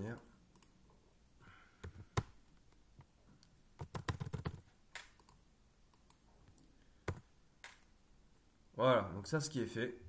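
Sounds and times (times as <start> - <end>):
computer keyboard typing: 3.8 - 5.4, 7.0 - 7.8.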